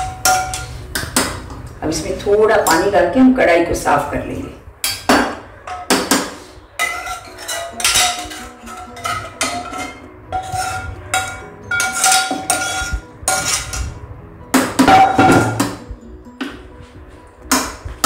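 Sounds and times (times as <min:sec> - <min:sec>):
metal spoon scraping a pan: 0:00.0 - 0:01.2, 0:05.7 - 0:14.0
pan ringing: 0:06.7 - 0:14.0, 0:14.8 - 0:16.0.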